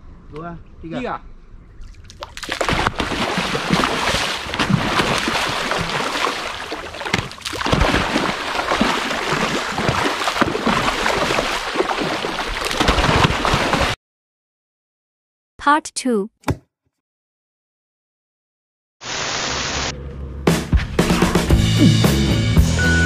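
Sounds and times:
fish thrashing and splashing: 0:01.8 - 0:14.0.

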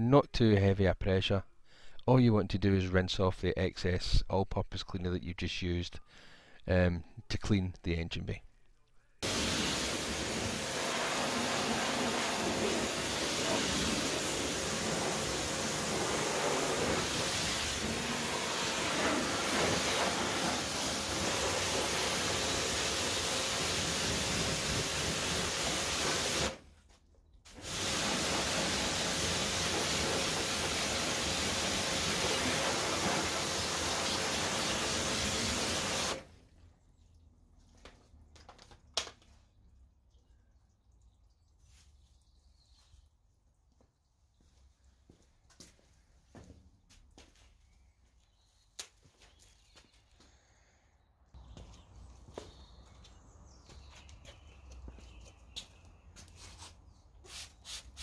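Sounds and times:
pressure washer spraying water: 0:09.2 - 0:26.6, 0:27.5 - 0:36.3.

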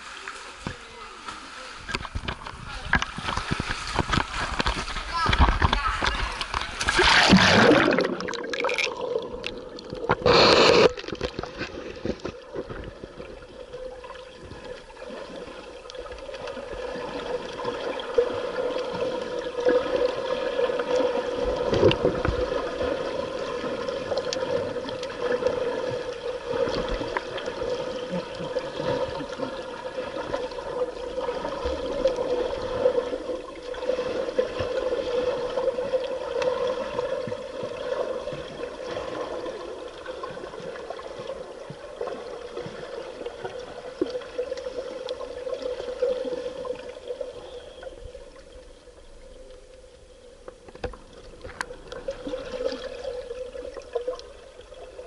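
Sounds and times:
faint underwater gurgling: 0:00.0 - 0:55.0
water splashing: 0:00.0 - 0:55.0
muffled underwater hum: 0:46.4 - 0:52.4.

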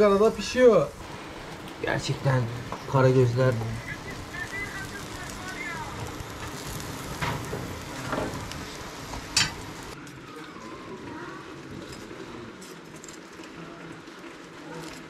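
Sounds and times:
fish sizzling on grill: 0:00.0 - 0:10.0
embers crackling: 0:00.0 - 0:15.0.

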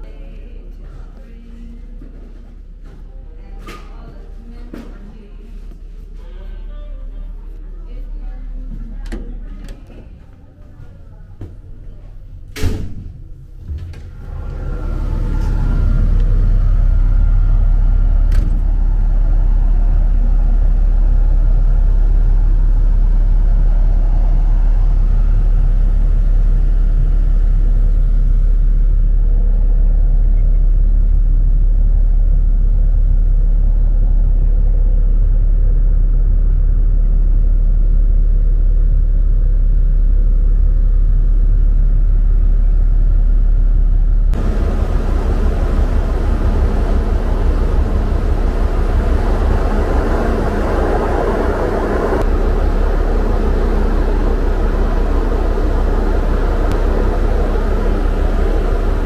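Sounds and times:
low rumble of ship engine: 0:00.0 - 0:59.0
wind buffeting microphone: 0:44.3 - 0:59.0.

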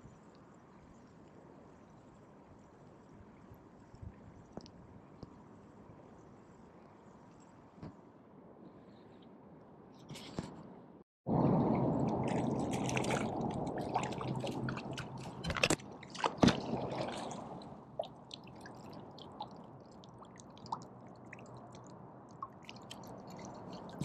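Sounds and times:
small clicks and drips: 0:00.0 - 0:07.9, 0:12.0 - 0:24.0
shallow water splashing: 0:11.3 - 0:24.0.

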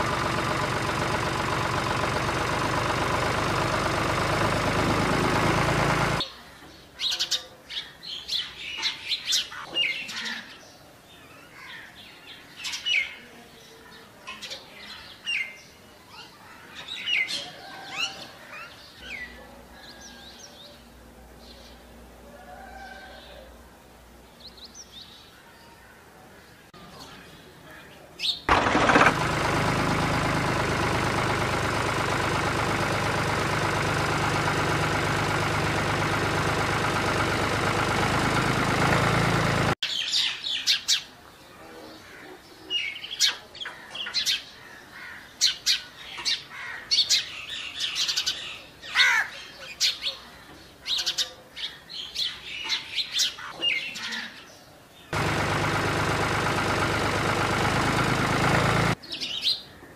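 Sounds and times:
birds chirping: 0:24.2 - 0:59.9.

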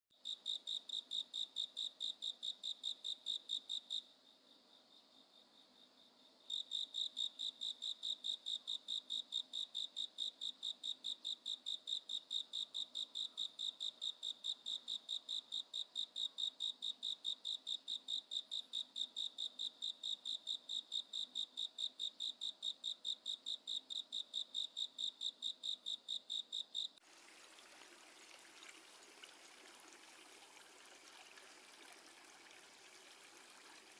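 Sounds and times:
cricket chirping: 0:00.2 - 0:27.0.

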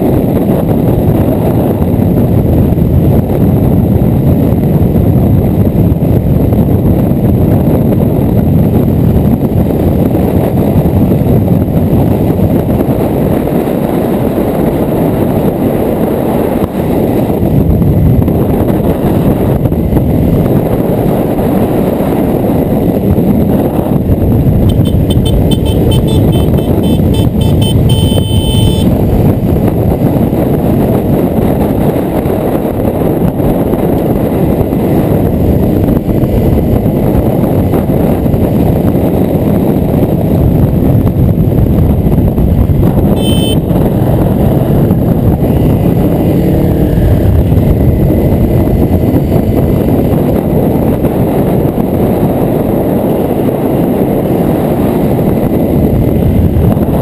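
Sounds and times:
wind rushing over microphone: 0:00.0 - 0:57.0
motorcycle engine under load: 0:24.3 - 0:30.1.

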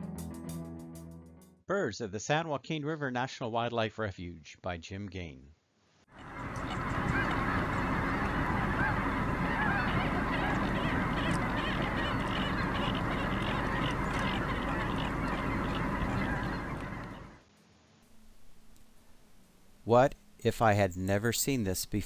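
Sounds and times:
flock of geese honking: 0:06.2 - 0:17.4.

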